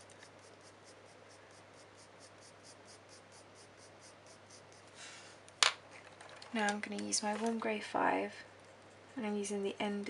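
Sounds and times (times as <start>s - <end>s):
pencil scratching on paper: 0.0s - 5.0s.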